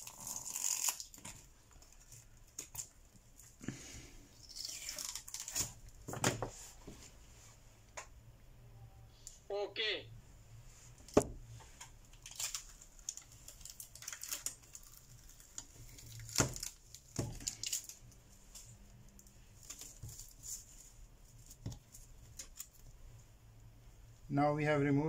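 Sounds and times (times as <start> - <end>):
plastic film crinkling and tearing: 0.0 - 3.0, 4.4 - 6.0, 12.1 - 20.7, 21.3 - 22.9.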